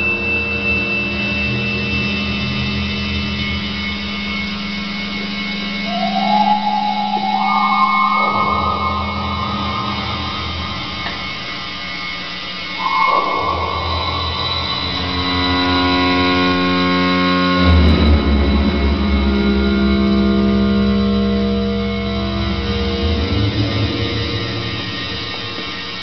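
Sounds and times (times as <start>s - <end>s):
synthesizer drone: 0.0s - 26.0s
thin high whine: 0.0s - 26.0s
low rumble: 5.8s - 12.0s
hissing noise: 5.9s - 11.6s.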